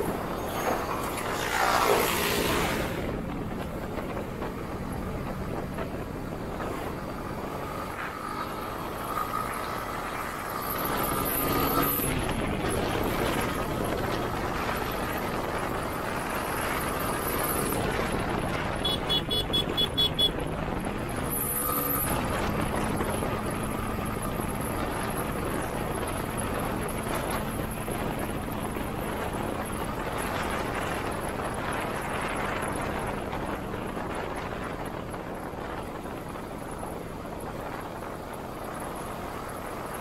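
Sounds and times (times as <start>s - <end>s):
motorcycle engine: 0.0s - 29.0s
wind and road noise: 0.0s - 40.0s.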